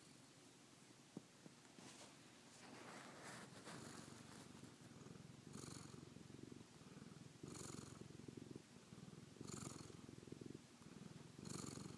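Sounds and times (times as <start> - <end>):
cat purring: 2.6 - 11.9.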